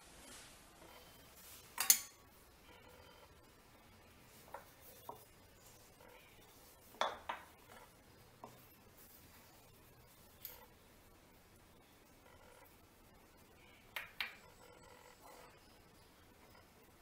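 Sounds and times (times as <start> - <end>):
kitchenware knocks and clinks: 1.8 - 2.2, 7.0 - 7.5.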